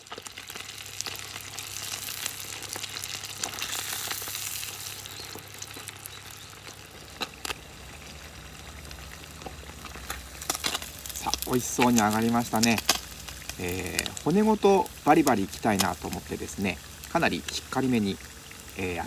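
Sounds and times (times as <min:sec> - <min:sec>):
fish deep-frying in oil: 0:00.0 - 0:19.0.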